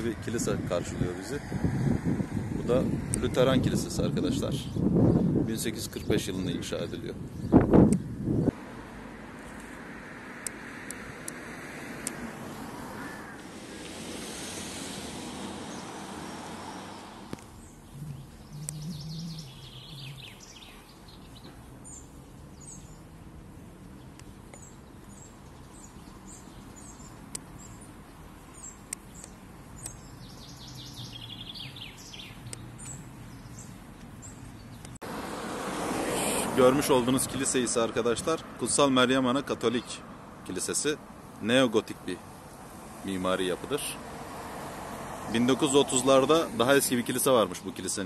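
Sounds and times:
steady rushing noise: 0:07.6 - 0:17.8
small birds chirping: 0:14.4 - 0:35.0.

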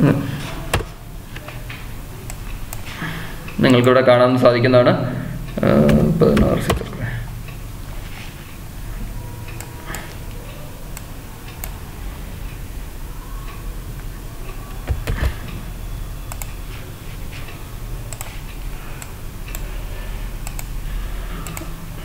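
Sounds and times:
knocks: 0:14.9 - 0:15.4.

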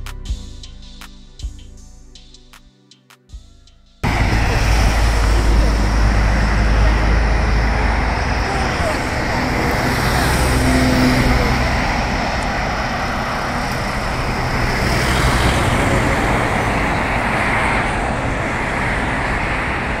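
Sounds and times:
road traffic noise: 0:04.0 - 0:20.0.

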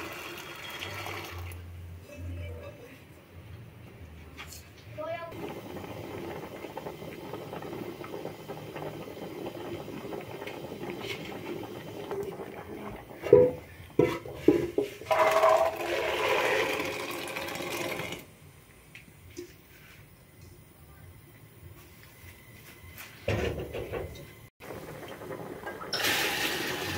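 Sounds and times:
liquid pouring: 0:00.0 - 0:01.6, 0:05.4 - 0:14.1, 0:15.0 - 0:18.2, 0:24.7 - 0:26.9
water boiling in a pot: 0:00.0 - 0:01.6, 0:05.3 - 0:18.4, 0:24.6 - 0:26.9
metal pots clanking: 0:11.0 - 0:16.4, 0:23.3 - 0:26.9.

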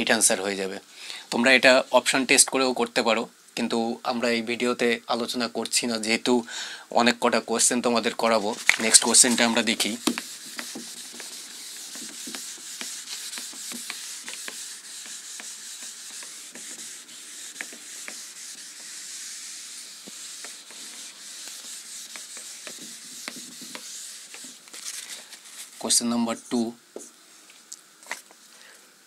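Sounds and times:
eraser rubbing on whiteboard: 0:08.2 - 0:27.1
eraser knocking against board: 0:10.0 - 0:16.9, 0:17.5 - 0:18.9, 0:22.1 - 0:24.6.

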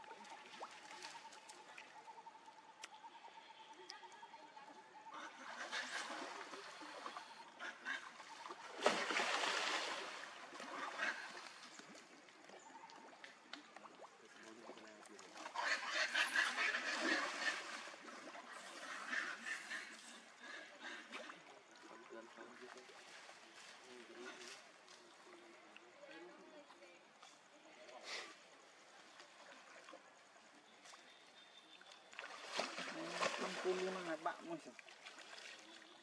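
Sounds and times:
monkeys splashing in water: 0:05.2 - 0:20.2, 0:32.0 - 0:36.0.

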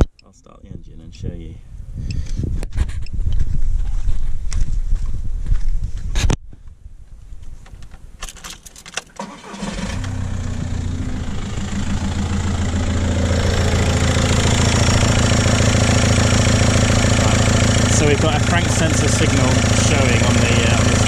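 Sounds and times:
diesel engine starting and idling: 0:09.2 - 0:21.0.

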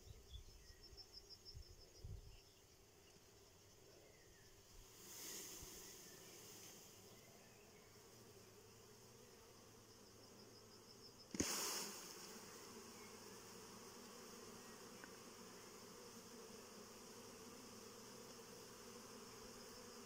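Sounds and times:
bees buzzing: 0:11.3 - 0:20.0.

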